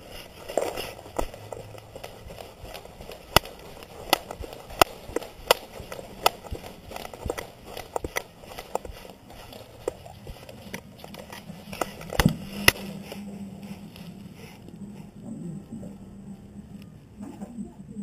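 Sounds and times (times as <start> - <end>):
dog claws clicking on wooden floor: 0.5 - 12.9.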